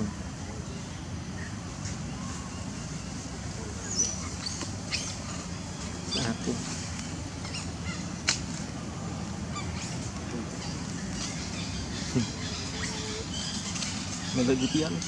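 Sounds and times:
steady low hum: 0.0s - 15.0s
monkeys squeaky calls: 3.4s - 6.6s, 7.3s - 8.2s, 9.5s - 15.0s.

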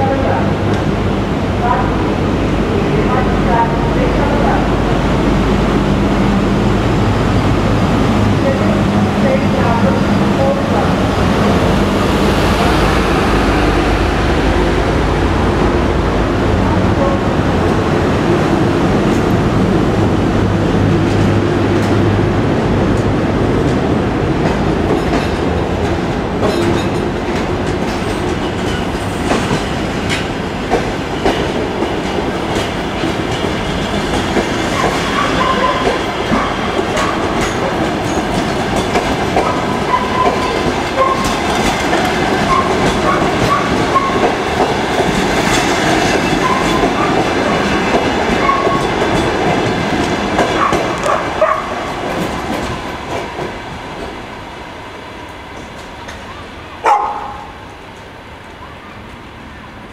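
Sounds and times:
low hum: 11.0s - 17.1s.

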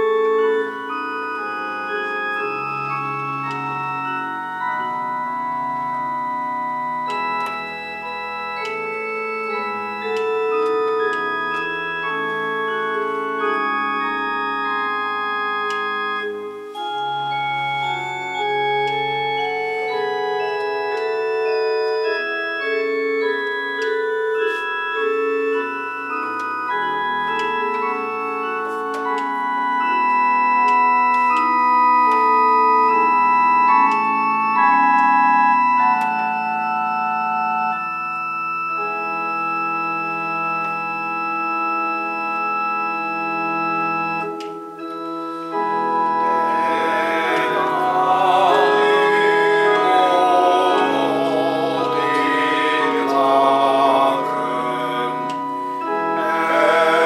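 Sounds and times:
deep organ bass notes: 0.0s - 57.0s
electronic church organ chords: 0.0s - 57.0s.

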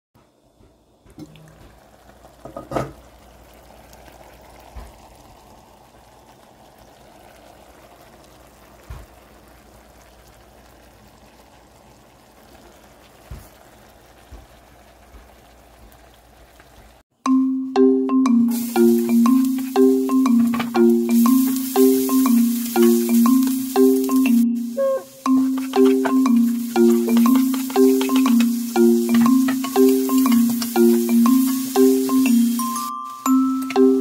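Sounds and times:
sauce simmering with bubbling hiss: 0.2s - 17.1s, 18.5s - 34.0s
knocks on pan: 2.4s - 3.0s.

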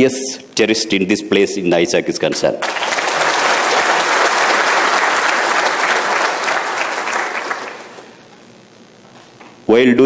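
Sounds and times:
audience applauding: 2.6s - 8.1s.

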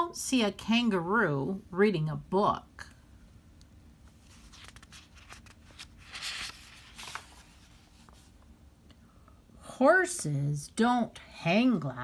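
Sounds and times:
book page turning swish: 4.2s - 8.3s.

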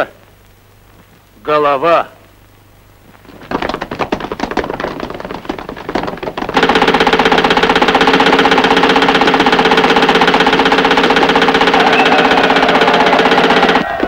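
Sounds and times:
machine-gun fire: 3.3s - 14.0s.

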